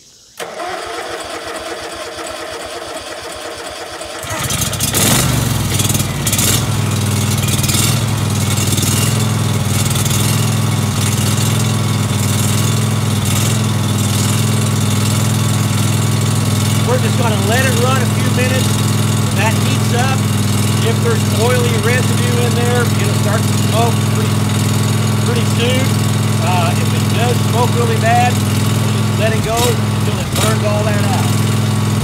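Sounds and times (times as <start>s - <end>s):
electric starter cranking: 0.3s - 32.0s
small engine running: 0.4s - 32.0s.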